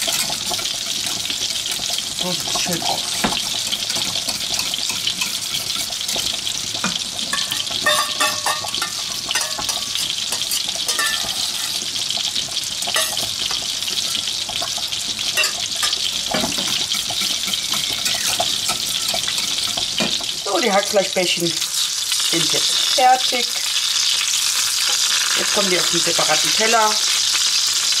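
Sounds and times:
meatballs sizzling in a pan: 0.0s - 28.0s
whisk scraping a steel saucepan: 3.1s - 11.9s, 16.5s - 20.0s.

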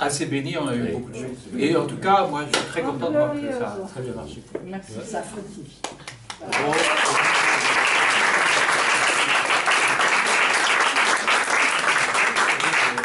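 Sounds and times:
audience applause: 6.4s - 13.0s.

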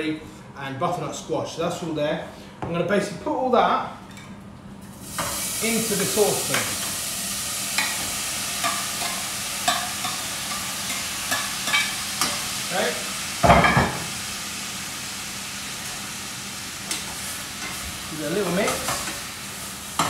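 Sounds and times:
vegetables sizzling in a saucepan: 4.9s - 20.0s.

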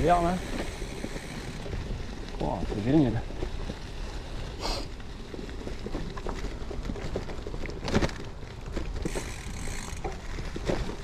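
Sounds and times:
bike rattling and knocking: 0.0s - 4.3s, 5.2s - 11.0s
tyres rumbling on dirt: 0.0s - 11.0s.

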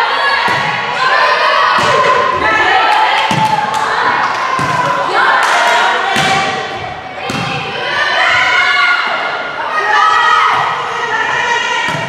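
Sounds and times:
volleyball thumps: 1.7s - 2.5s, 3.2s - 3.9s, 4.5s - 7.7s.

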